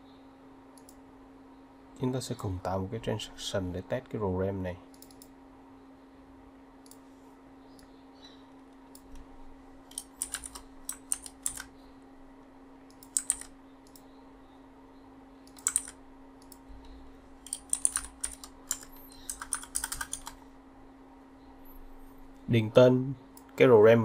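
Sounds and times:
keyboard typing: 9.9s - 11.7s, 12.9s - 14.0s, 15.5s - 16.6s, 17.4s - 20.4s.

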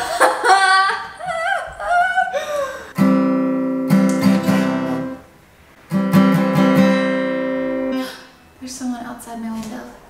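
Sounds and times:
acoustic guitar strumming: 3.0s - 8.6s.

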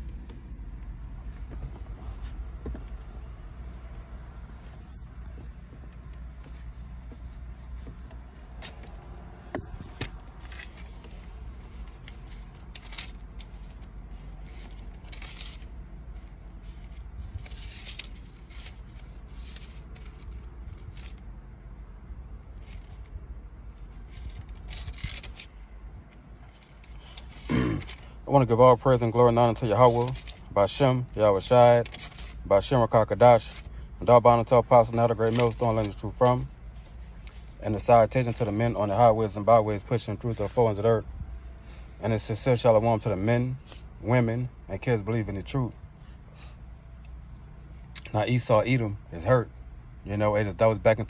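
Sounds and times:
low hum inside a car: 0.0s - 51.0s
scraping and rustling: 4.6s - 21.3s.

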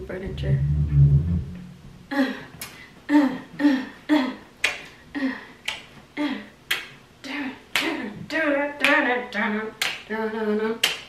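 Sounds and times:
finger snaps: 4.6s - 4.9s, 5.6s - 6.0s, 6.7s - 7.0s.

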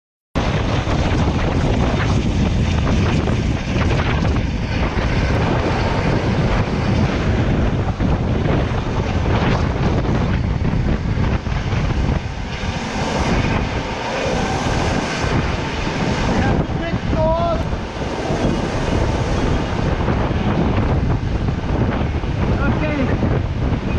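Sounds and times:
helicopter rotor noise: 0.4s - 23.9s
wind buffeting microphone: 0.4s - 23.9s.

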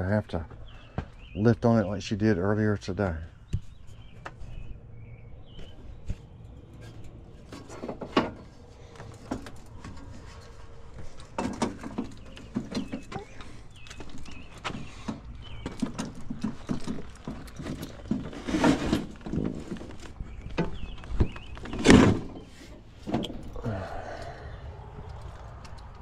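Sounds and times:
heavy unit knocking and scraping: 3.6s - 23.6s.

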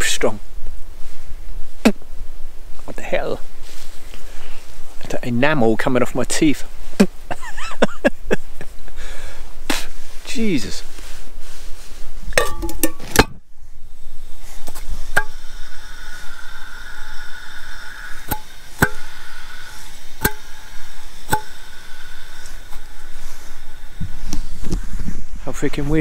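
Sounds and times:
gas hissing from canister valve: 12.3s - 25.5s.

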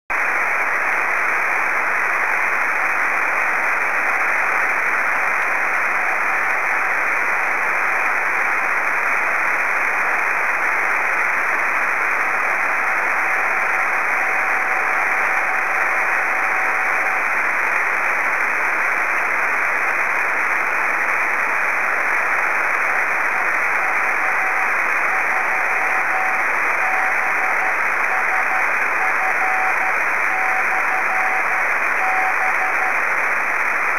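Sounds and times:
radio receiver hiss: 0.1s - 33.9s
morse code tone: 13.1s - 17.2s, 23.3s - 33.2s.

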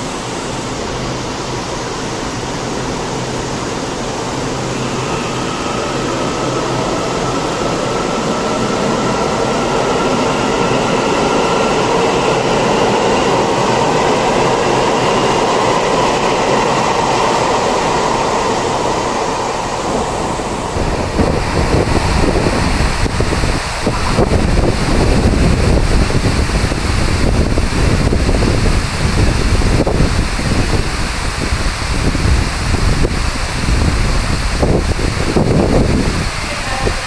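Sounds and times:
electric train traction whine: 0.0s - 37.0s
heavy rain hissing: 0.0s - 37.0s
wind buffeting microphone: 0.0s - 37.0s.

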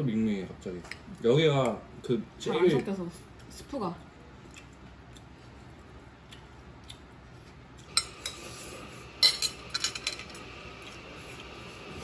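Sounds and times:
cutlery clinking on ceramic plates: 9.2s - 10.4s.

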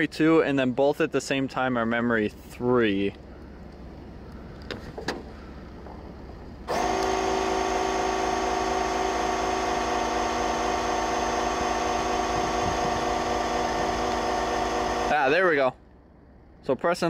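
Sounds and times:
electric air compressor running: 6.7s - 15.2s.

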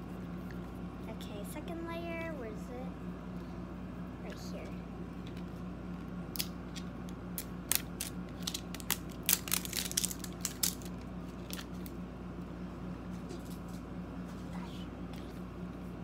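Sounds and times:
plastic wrapper crinkling and tearing: 7.4s - 12.0s.

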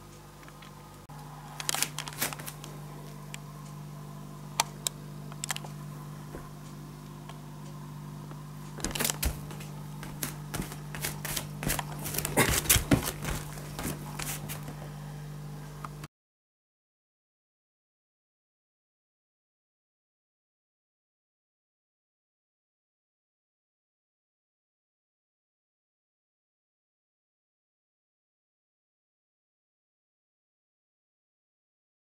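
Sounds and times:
steady low hum: 0.0s - 16.1s
sharp clicks and rustles: 1.6s - 2.7s, 4.6s - 5.7s, 8.8s - 14.7s.

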